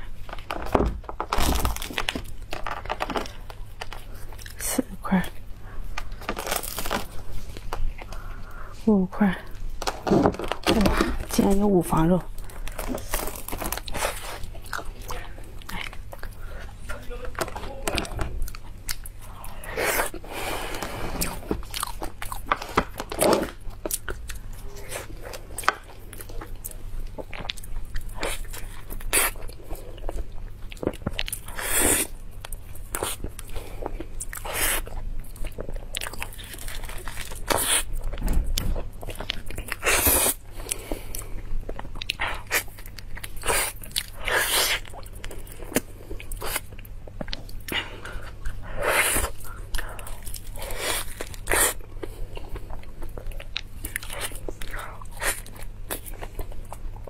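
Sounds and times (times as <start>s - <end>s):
person chewing: 12.3s - 57.0s.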